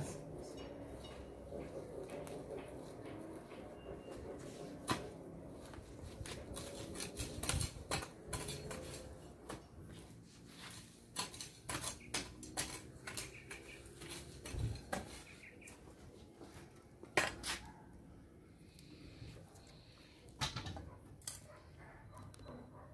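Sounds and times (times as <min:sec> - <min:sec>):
metal edger blade scraping: 0:06.2 - 0:09.4, 0:10.5 - 0:15.0.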